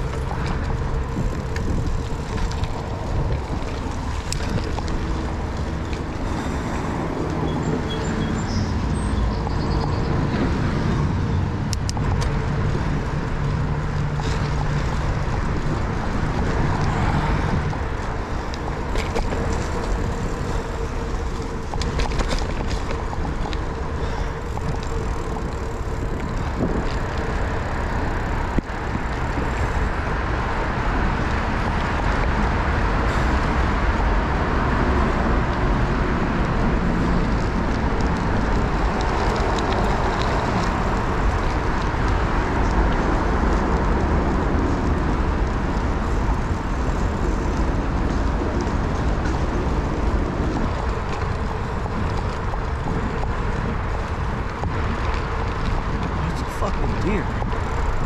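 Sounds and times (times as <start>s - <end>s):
bicycle tyres rolling: 0.0s - 58.0s
road traffic hum: 0.0s - 58.0s
wind rush on microphone: 0.0s - 58.0s.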